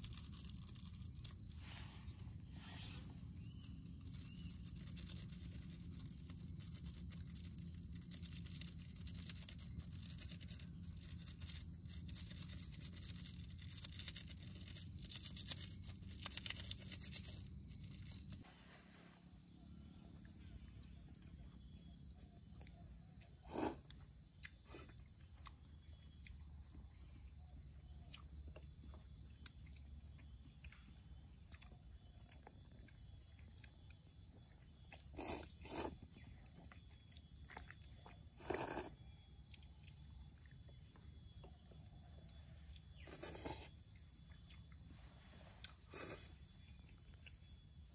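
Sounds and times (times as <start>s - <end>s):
insects chirring: 0.0s - 47.9s
slurping noodles: 23.4s - 24.0s, 35.1s - 36.2s, 38.0s - 39.0s, 43.0s - 43.8s, 45.6s - 46.4s.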